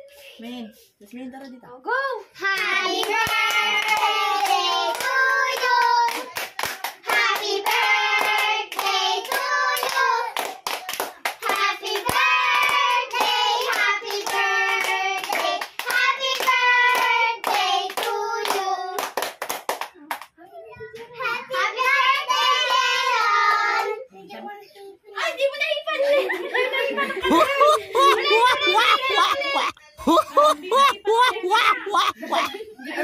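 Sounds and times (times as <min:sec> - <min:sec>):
hands clapping: 0:02.6 - 0:20.3.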